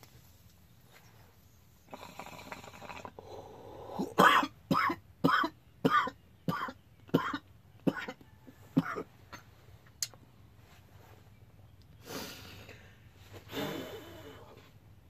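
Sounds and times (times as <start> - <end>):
person coughing hard: 4.0 - 8.2, 8.8 - 9.4.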